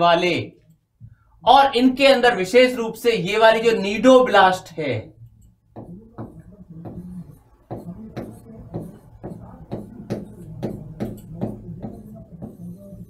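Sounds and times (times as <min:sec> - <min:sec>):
pen tapping on writing board: 0:05.7 - 0:12.7.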